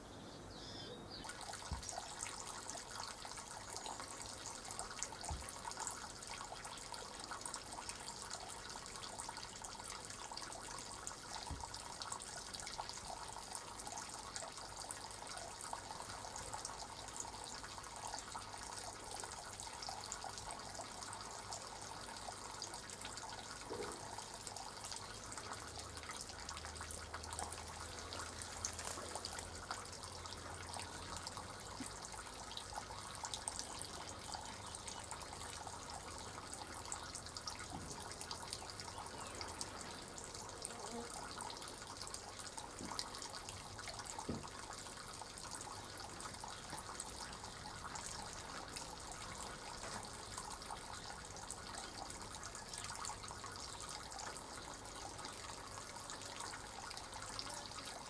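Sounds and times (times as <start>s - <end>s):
tap water splashing into puddle: 1.2s - 3.5s, 4.4s - 8.8s, 9.9s - 15.0s, 31.2s - 34.0s, 34.7s - 39.9s, 42.1s - 52.2s.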